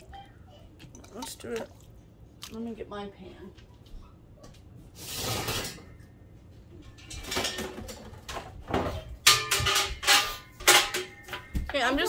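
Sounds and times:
metal cookware clattering: 5.0 - 6.1, 6.7 - 12.0
ringing metallic clanks: 9.2 - 12.0.

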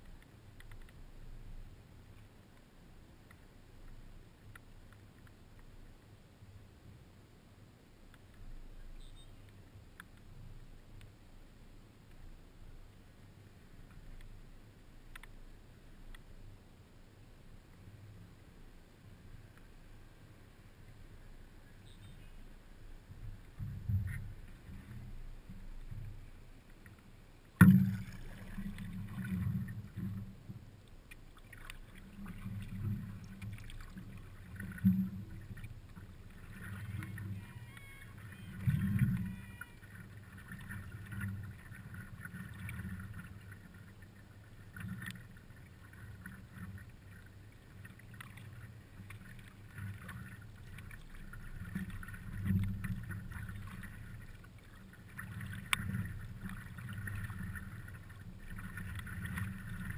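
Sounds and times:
water lapping and splashing: 23.0 - 59.9.

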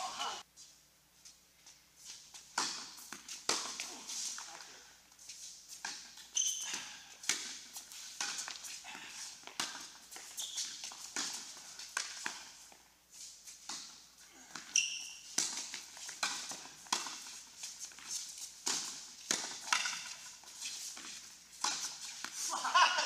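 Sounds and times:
tennis balls struck by rackets: 2.4 - 4.0, 6.8 - 8.7, 9.4 - 12.5, 13.6 - 22.4
shoe squeak: 6.2 - 7.0, 10.2 - 10.9, 14.7 - 15.4.

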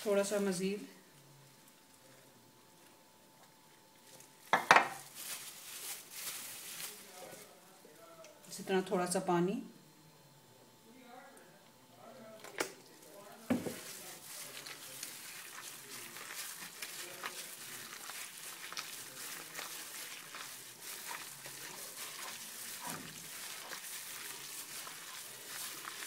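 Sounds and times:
hand squelching wet batter: 13.8 - 26.0.

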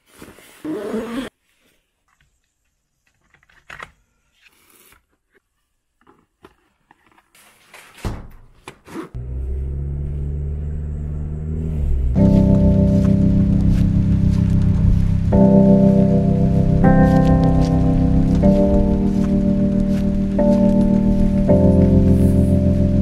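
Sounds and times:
car engine drone from inside: 9.2 - 19.8.

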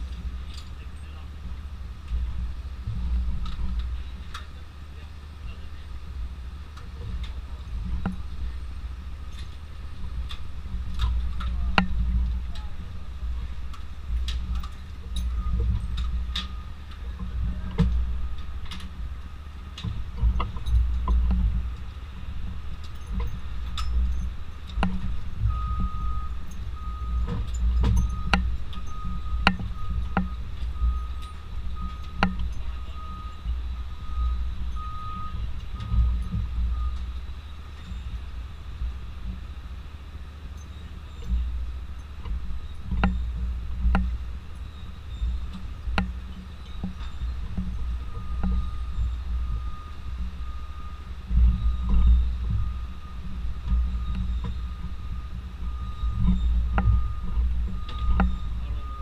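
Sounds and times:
engines idling: 0.0 - 59.0
faint steady whine: 0.0 - 59.0
low vehicle rumble: 0.0 - 59.0
electronic reversing beep: 14.5 - 18.6, 22.9 - 43.6, 44.5 - 45.7, 46.3 - 59.0.

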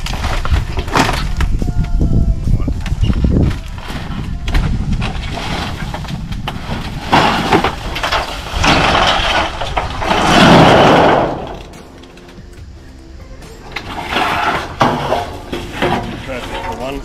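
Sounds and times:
metal roofing sheets clattering: 3.4 - 12.3, 13.7 - 17.0.

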